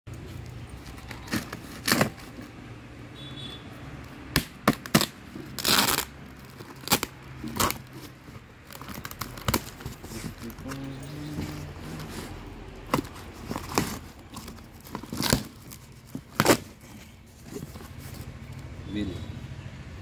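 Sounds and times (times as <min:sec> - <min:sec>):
tape and cardboard ripping: 0:00.8 - 0:02.6, 0:04.2 - 0:18.3.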